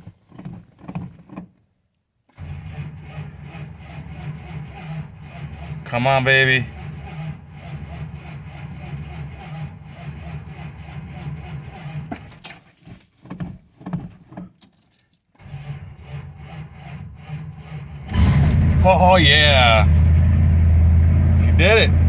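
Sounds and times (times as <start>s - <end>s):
starter motor cranking engine: 2.3s - 12.4s, 15.4s - 22.0s.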